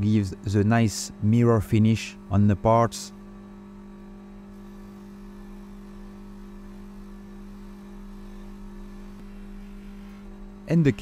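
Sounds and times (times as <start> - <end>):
polishing motor humming: 4.1 - 11.0.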